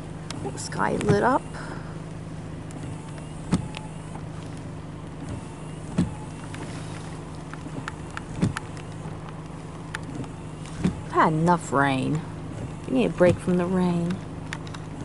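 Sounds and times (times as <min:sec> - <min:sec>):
car engine idling: 0:00.0 - 0:15.0
short thumps: 0:00.8 - 0:01.4, 0:05.2 - 0:08.9.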